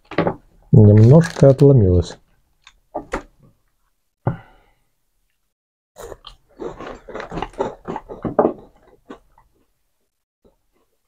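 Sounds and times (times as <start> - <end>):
person chewing: 6.0 - 9.8, 10.5 - 11.0.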